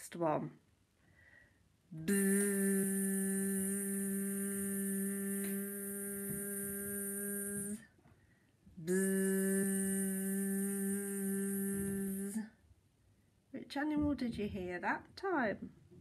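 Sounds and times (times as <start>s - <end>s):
person imitating bee buzzing: 2.0s - 7.8s, 8.8s - 12.5s.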